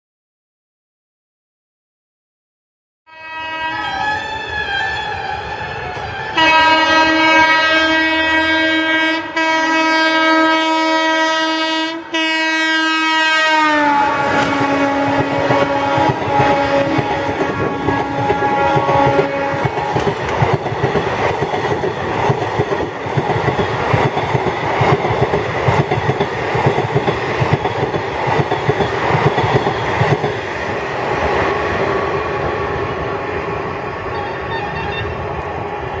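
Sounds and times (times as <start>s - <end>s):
locomotive horn: 3.1s - 20.0s, 34.1s - 35.2s
train wheels clattering over rail joints: 14.4s - 30.4s.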